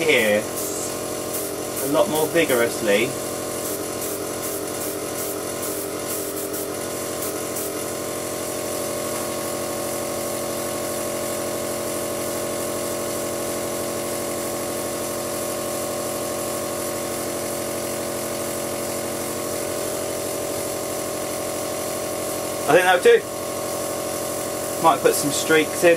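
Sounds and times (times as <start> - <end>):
air hissing: 0.0 - 11.1
airbrush compressor motor hum: 0.0 - 25.9.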